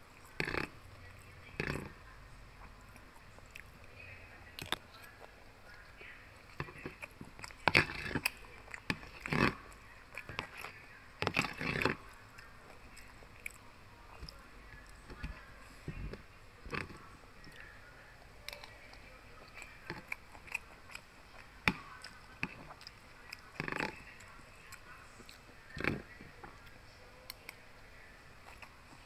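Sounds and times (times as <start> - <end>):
person chewing food: 0.0 - 2.0, 2.6 - 29.0.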